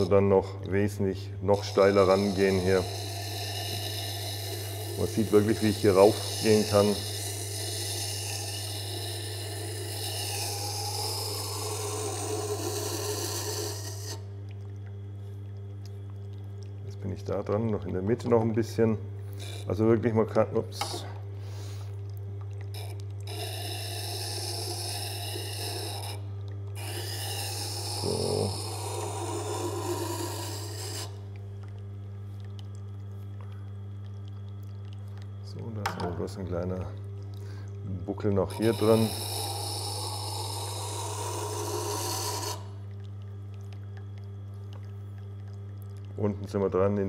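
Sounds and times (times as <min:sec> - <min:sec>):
knife grinding on wet stone: 0:00.0 - 0:14.3, 0:16.0 - 0:21.8, 0:22.6 - 0:31.9, 0:38.2 - 0:44.2
sharpening machine humming: 0:01.6 - 0:14.2, 0:22.8 - 0:26.2, 0:26.8 - 0:31.2, 0:38.5 - 0:42.7.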